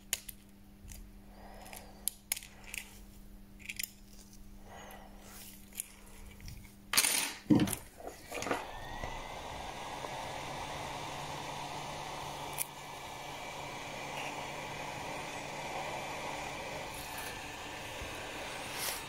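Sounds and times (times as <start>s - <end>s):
electric blower running: 8.3s - 19.0s.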